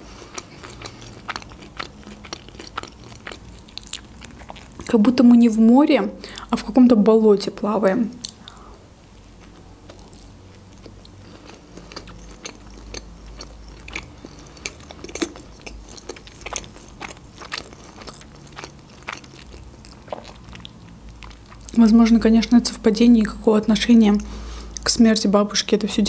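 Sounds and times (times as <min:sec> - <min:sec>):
person chewing: 0:00.0 - 0:04.9, 0:09.2 - 0:21.8.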